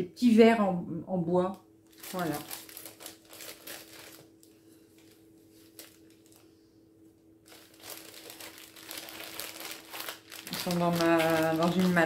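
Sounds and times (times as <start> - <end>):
packaging rustling: 1.9 - 6.5, 7.4 - 12.0.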